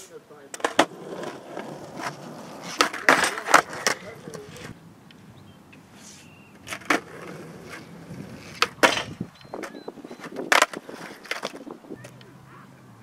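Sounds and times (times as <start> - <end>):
skateboard hard landing: 0.6 - 4.7, 6.6 - 12.2
skateboard hitting bench: 0.6 - 4.7, 6.6 - 12.2
skateboard grinding on bench: 0.6 - 4.8, 6.6 - 12.2.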